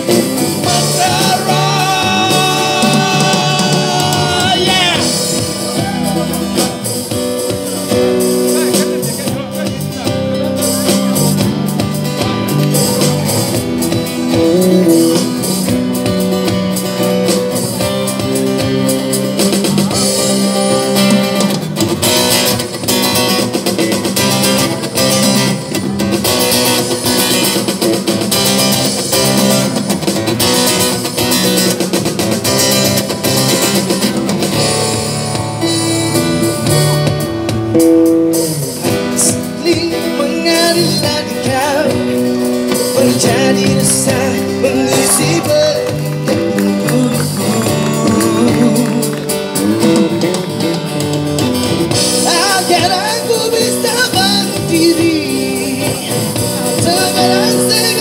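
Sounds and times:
person singing: 0.0 - 7.0, 14.3 - 15.7, 39.0 - 51.1, 52.1 - 58.0
acoustic guitar: 0.0 - 58.0.

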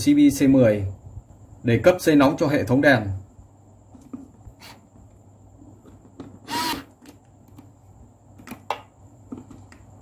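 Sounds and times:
cordless drill running: 6.4 - 7.0.

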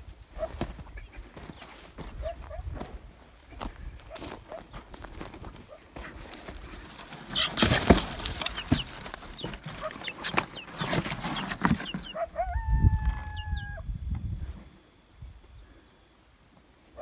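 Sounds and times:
footsteps in dry brush: 0.0 - 13.6
chickens clucking and chirping: 0.3 - 16.1.

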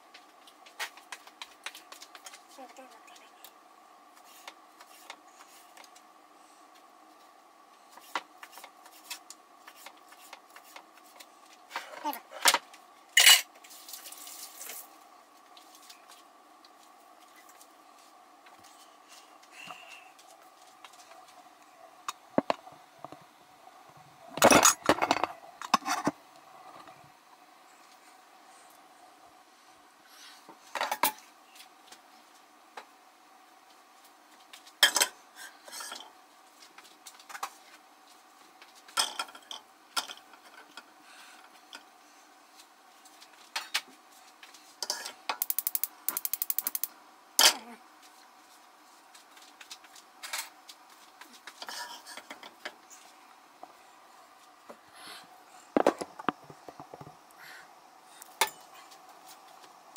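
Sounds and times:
faint steady hum: 0.0 - 59.9
pots and utensils clinking: 13.2 - 13.5, 34.8 - 36.1
rapid even clicks: 45.4 - 46.9.

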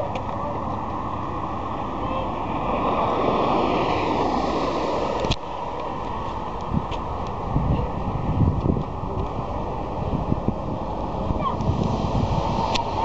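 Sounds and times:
vehicle passing close by: 1.1 - 6.1, 9.5 - 13.0
wind on microphone: 1.1 - 13.0.

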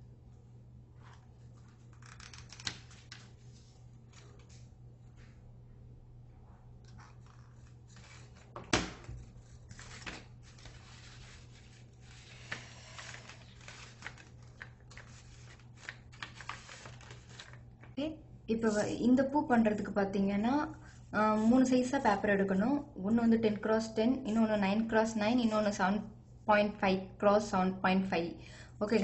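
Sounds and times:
low steady hum: 0.0 - 29.0
paper rustling and crinkling: 6.9 - 18.0.

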